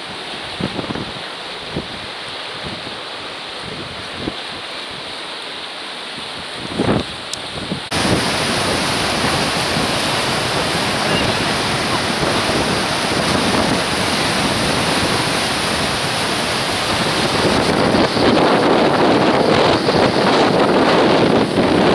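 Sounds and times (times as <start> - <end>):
wind on microphone: 0.0 - 3.0, 3.6 - 5.2, 6.1 - 21.9
waves breaking over rocks: 6.6 - 21.9.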